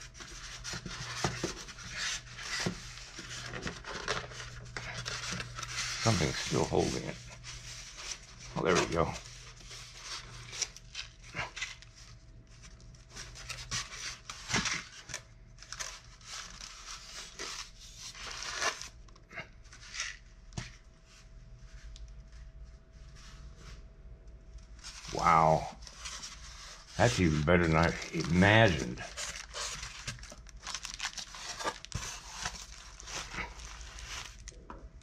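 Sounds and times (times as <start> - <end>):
plastic wrap crinkling: 24.7 - 35.0.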